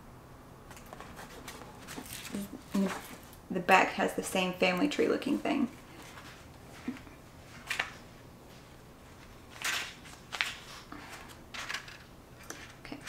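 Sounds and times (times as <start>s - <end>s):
book pages rustling: 0.7s - 3.4s.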